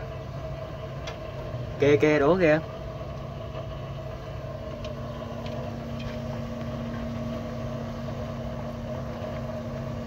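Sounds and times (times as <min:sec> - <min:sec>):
engine idling: 0:00.0 - 0:10.0.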